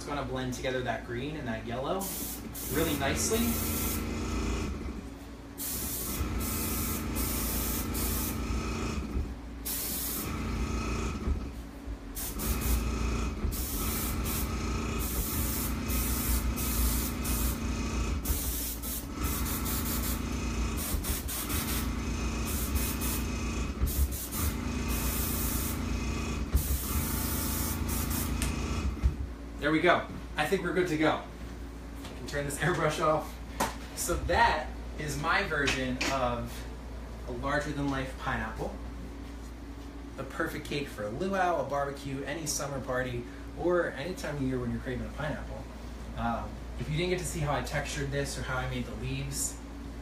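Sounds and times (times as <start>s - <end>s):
airbrush spraying: 2.0s - 4.1s, 5.6s - 8.4s, 9.6s - 10.4s, 12.2s - 12.9s, 13.5s - 25.9s, 26.6s - 28.5s.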